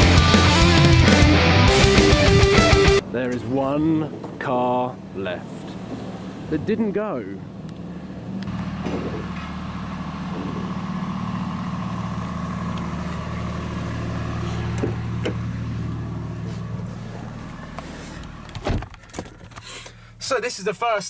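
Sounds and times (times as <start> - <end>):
car engine idling: 0.0 - 21.0
car door shutting thump: 14.7 - 15.5, 18.2 - 19.4
car door clicks: 18.2 - 19.6.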